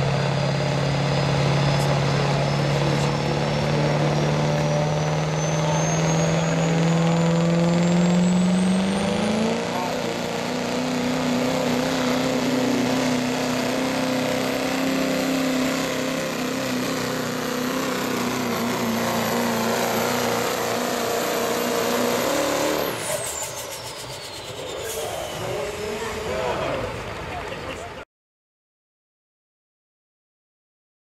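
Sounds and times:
diesel truck engine under load: 0.0s - 28.0s
turbo whistle: 4.5s - 9.5s, 17.8s - 25.9s.

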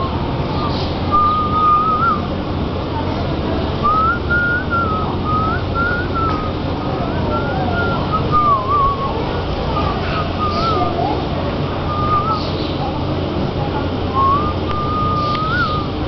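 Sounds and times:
low background rumble: 0.0s - 16.0s
person whistling a tune: 1.1s - 2.2s, 3.8s - 6.5s, 7.3s - 9.2s, 11.9s - 12.4s, 14.2s - 16.0s.

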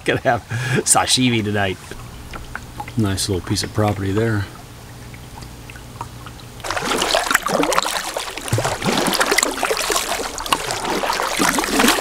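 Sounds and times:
paddle splashing water: 1.7s - 12.0s.

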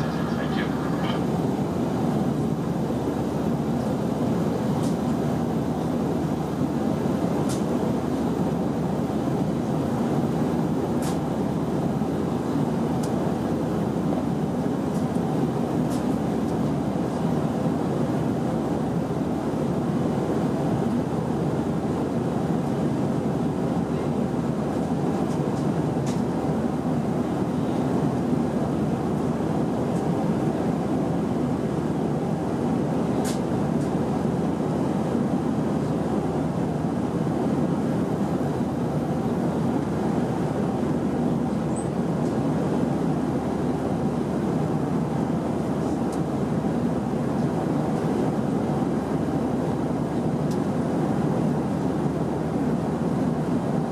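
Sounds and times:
aircraft engine and airflow roar: 0.0s - 53.9s.

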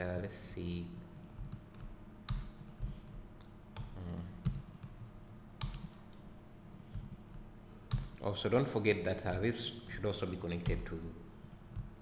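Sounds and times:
computer mouse clicks: 1.2s - 3.2s, 3.8s - 5.0s, 5.6s - 8.2s.

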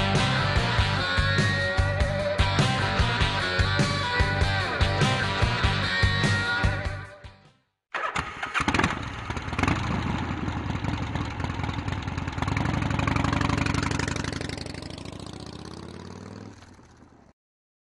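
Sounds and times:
guitar music: 0.0s - 7.2s.

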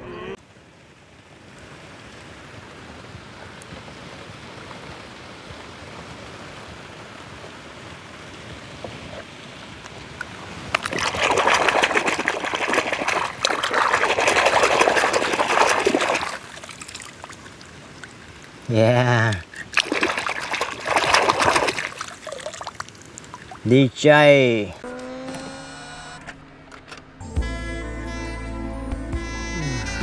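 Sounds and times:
faint steady hiss: 0.0s - 11.8s, 13.0s - 24.8s
hand splashing in muddy water: 10.7s - 17.6s, 19.3s - 23.7s.

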